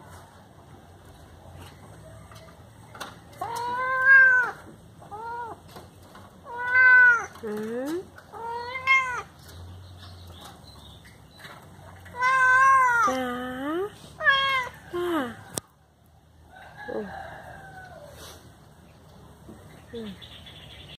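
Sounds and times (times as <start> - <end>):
cat meowing: 3.4 - 5.6, 6.4 - 7.4, 8.3 - 9.3, 12.1 - 13.2, 14.2 - 14.8.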